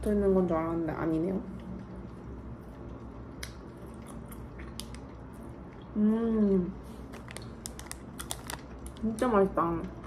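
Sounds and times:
person chewing candy: 2.8s - 5.9s, 7.0s - 9.0s.

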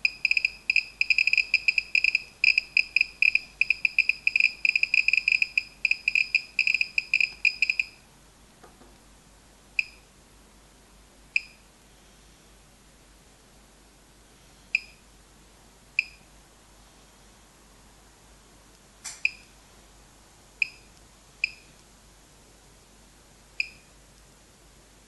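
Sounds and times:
geiger counter beeps: 0.0s - 8.0s.

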